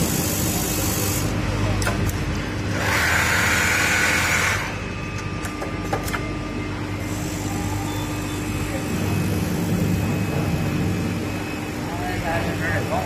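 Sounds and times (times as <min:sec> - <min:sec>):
sewing machine running: 0:02.7 - 0:04.8.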